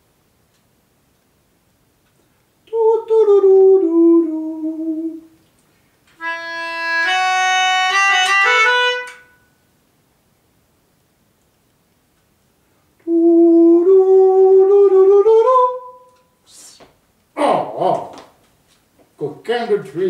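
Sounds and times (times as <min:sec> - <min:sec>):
melodica playing: 0:06.2 - 0:09.5.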